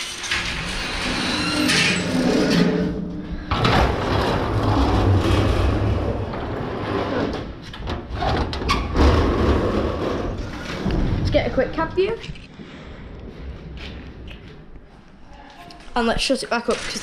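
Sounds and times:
metal gate rattling and clanking: 0.0 - 3.0
low rolling rumble: 2.2 - 7.6, 8.9 - 15.1.

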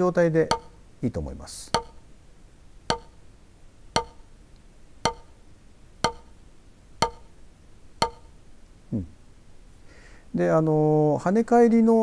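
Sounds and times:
drumstick hitting practice pad: 0.4 - 0.8, 1.7 - 2.1, 2.9 - 3.2, 4.0 - 4.3, 5.0 - 5.4, 6.0 - 6.4, 7.0 - 7.4, 8.0 - 8.4.

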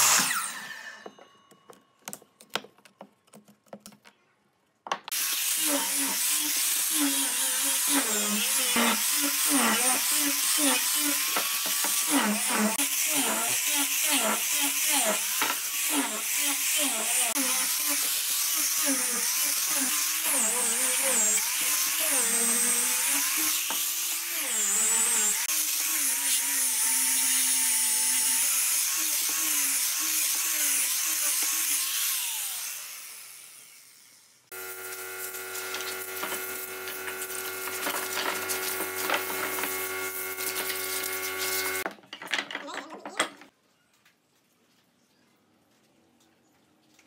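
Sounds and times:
electric grinder sanding wood: 0.0 - 1.0, 5.1 - 41.9
wood pieces knocking: 1.5 - 4.2, 41.9 - 43.5.

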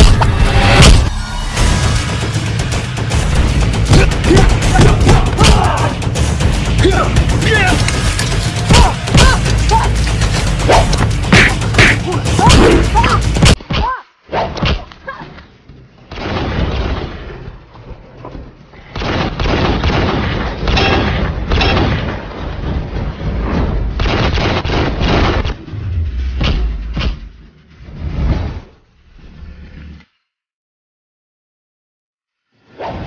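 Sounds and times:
heavy hit sound effects: 0.0 - 5.8, 25.2 - 27.5
action film music: 0.0 - 13.6, 19.8 - 28.3.

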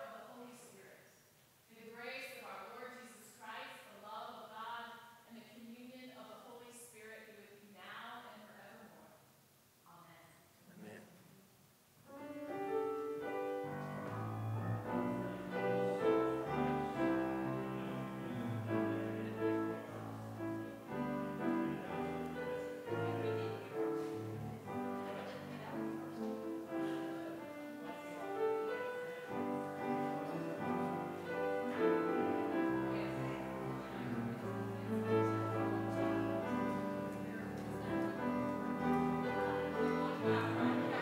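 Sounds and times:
piano piece: 12.1 - 41.0.

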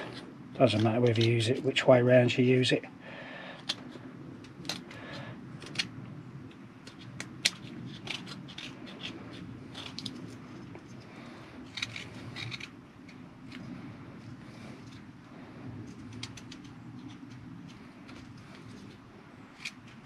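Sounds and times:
faint low rumble: 0.0 - 20.0.

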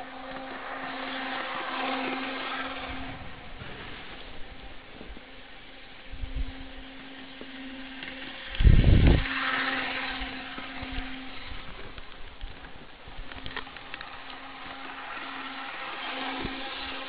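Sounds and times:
loud rumble of passing trolley: 0.0 - 17.0
small electric motor humming: 0.0 - 17.0
wheels rattling on rail: 6.5 - 17.0.

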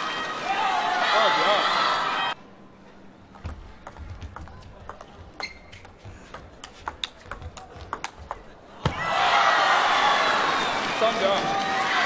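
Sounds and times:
table tennis ball clicking: 3.4 - 8.5.

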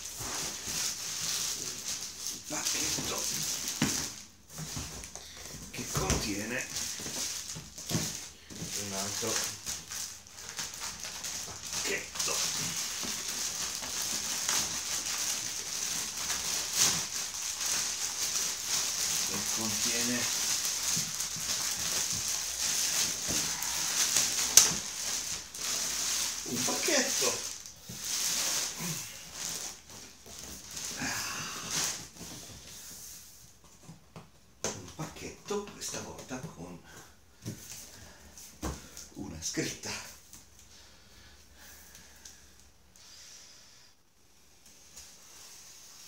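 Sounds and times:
plastic mailer bag crinkling: 0.0 - 32.2.

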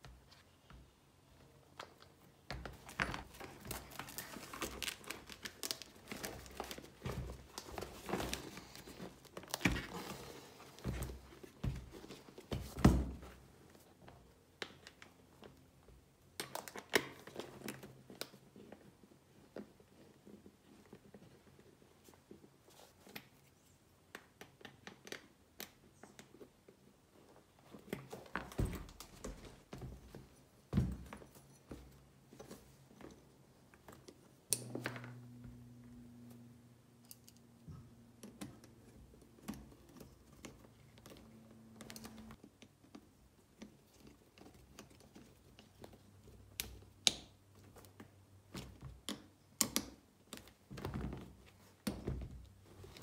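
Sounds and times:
handling rustling and crinkling: 0.0 - 23.7.

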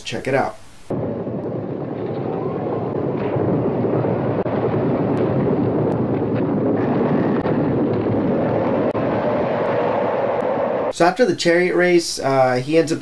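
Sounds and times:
galloping horses and chariot wheels: 1.0 - 10.9
crowd roaring: 1.1 - 4.4, 8.4 - 10.9.

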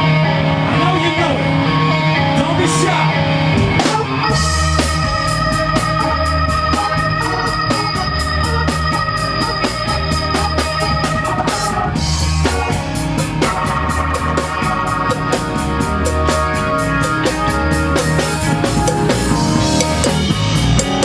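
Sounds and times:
held organ-like chords: 0.0 - 21.0
pulsing bass line: 3.4 - 21.0
drums with steady hi-hat: 3.6 - 21.0
congas: 4.7 - 21.0.

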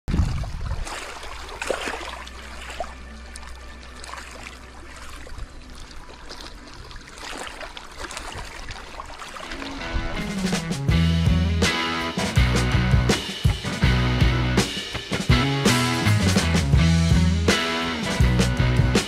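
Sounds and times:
water splashing and trickling: 0.0 - 11.0.

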